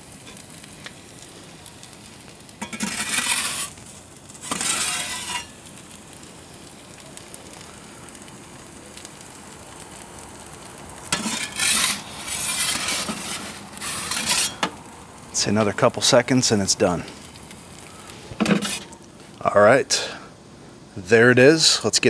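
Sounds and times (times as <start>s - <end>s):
pizza oven flame hissing: 0.0s - 22.0s
rushing scraping noise: 2.7s - 3.8s, 4.4s - 5.5s, 11.1s - 14.6s, 18.4s - 19.0s.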